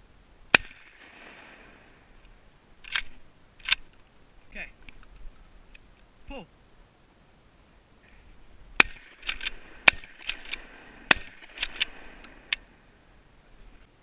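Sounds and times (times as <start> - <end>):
shotgun shots: 0.5 - 1.9, 8.8 - 12.6
shotgun pump clacks: 2.8 - 4.1, 8.8 - 12.7.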